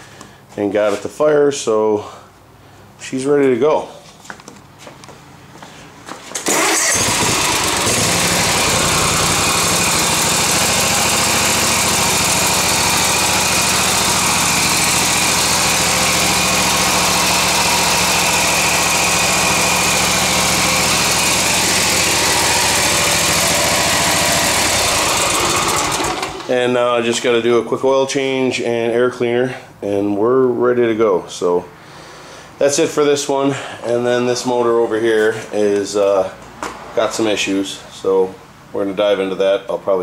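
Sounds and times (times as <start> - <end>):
mower engine starting and running: 6.4 - 27.4.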